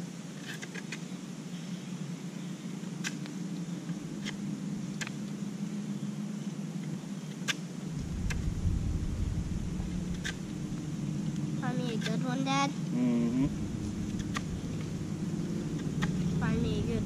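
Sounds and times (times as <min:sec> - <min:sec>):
deep low rumble: 0:07.9 - 0:11.9, 0:13.2 - 0:17.0
steady low drone: 0:07.9 - 0:12.0, 0:12.7 - 0:17.0.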